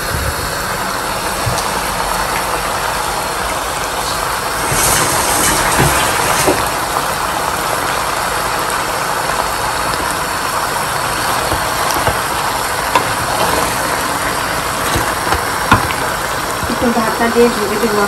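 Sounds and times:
curry sizzling in a pan: 0.5s - 18.0s
wooden spatula knocking pan: 11.2s - 16.2s.

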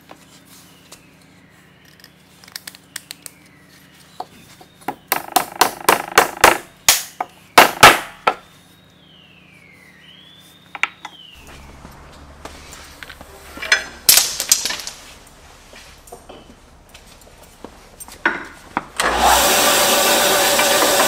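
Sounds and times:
electric motor humming: 11.4s - 13.6s, 18.7s - 21.0s.

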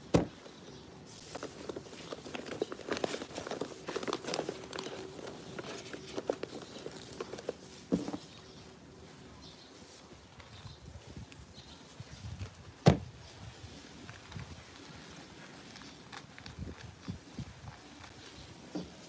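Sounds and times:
microphone handling knocks: 0.1s - 0.4s, 12.8s - 13.1s
small clicks and rustles: 0.4s - 8.4s, 13.8s - 19.0s.

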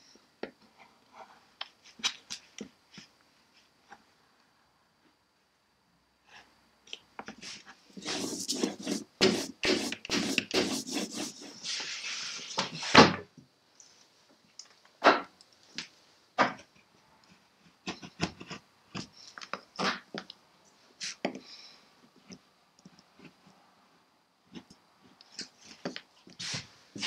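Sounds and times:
gouge scraping linoleum: 8.0s - 11.9s.

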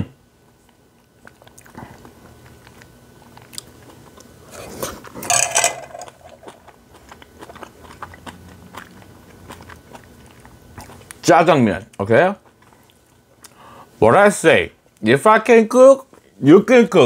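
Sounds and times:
person chewing noodles: 0.6s - 5.2s, 6.1s - 13.9s.

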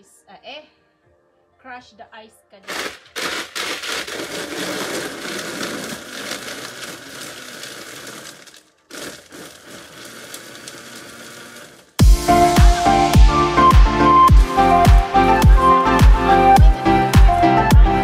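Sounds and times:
blender crushing ice: 2.7s - 12.0s.

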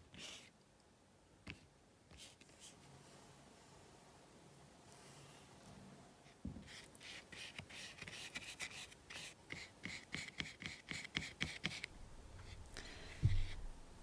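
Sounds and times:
brush scratching on canvas: 6.7s - 13.7s.

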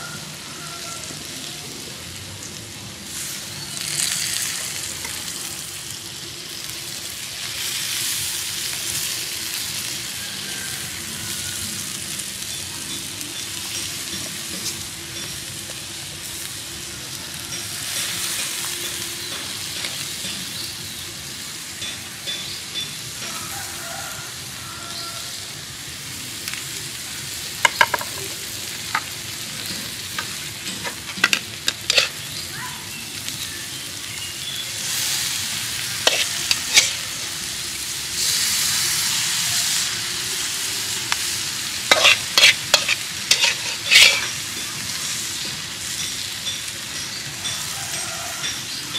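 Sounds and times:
prawns sizzling on hot stone: 0.0s - 48.9s.

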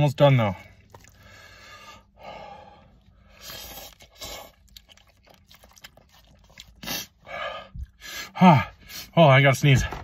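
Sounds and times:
soft clicking chewing: 0.8s - 1.2s, 3.8s - 6.8s
person slurping noodles: 3.3s - 7.2s.

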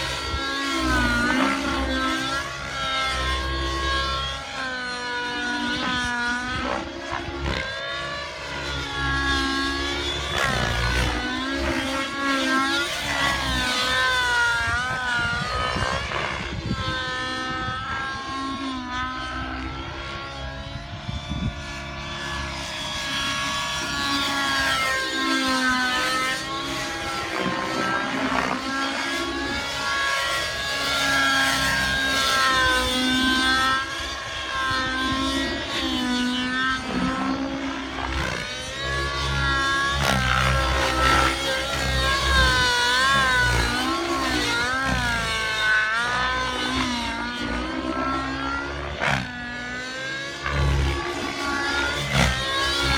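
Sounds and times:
model helicopter motor whine: 0.0s - 52.9s
wind rumble on microphone: 13.0s - 24.9s.

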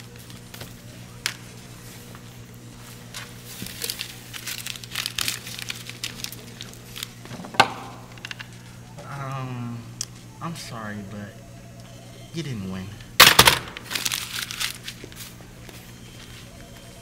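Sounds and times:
paper shuffling and crumpling: 0.0s - 7.4s, 13.8s - 17.0s
low steady hum: 0.0s - 17.0s.

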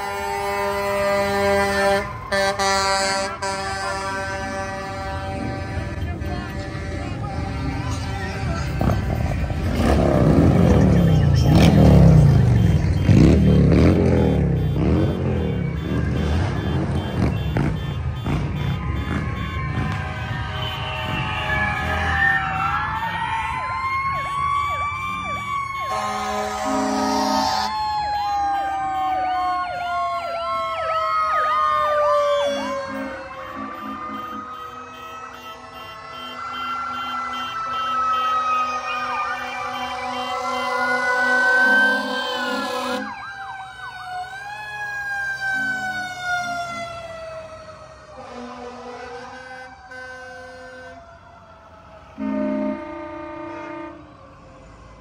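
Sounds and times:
low horn blast: 0.0s - 22.2s, 25.7s - 27.7s, 32.2s - 43.2s, 48.1s - 51.1s, 52.2s - 54.2s
siren wailing: 0.0s - 55.0s
fast swooping siren: 8.9s - 55.0s.

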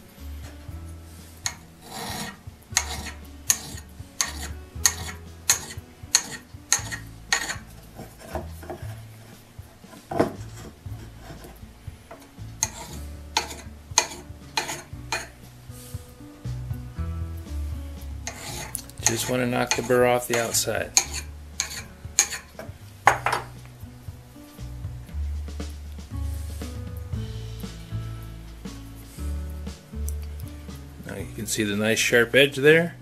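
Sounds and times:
sharpening stone scraping steel: 1.4s - 8.8s, 12.6s - 15.3s, 18.2s - 22.7s.

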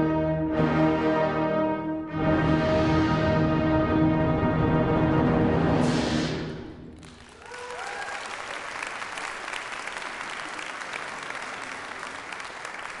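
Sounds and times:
brass and timpani chord: 0.0s - 7.0s
audience applause: 7.0s - 13.0s
audience cheering: 7.0s - 13.0s.

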